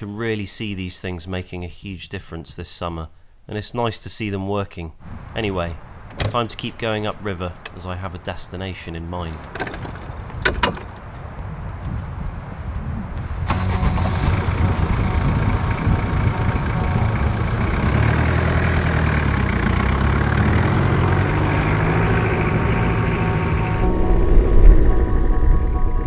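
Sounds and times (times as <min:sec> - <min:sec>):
metal clunk: 0:06.0 - 0:06.8, 0:09.4 - 0:11.1
car engine running: 0:13.5 - 0:26.0.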